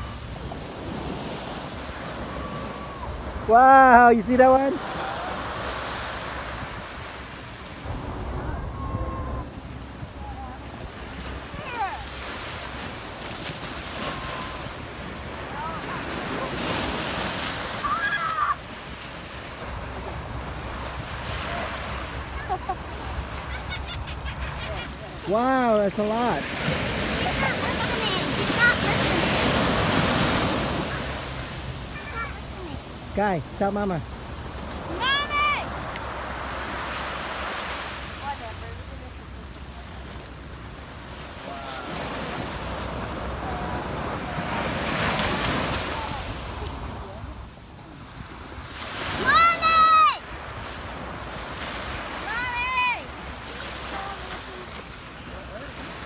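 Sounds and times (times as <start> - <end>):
ocean surf washing onto beach: 0.0 - 56.0
wind on microphone: 6.4 - 12.1.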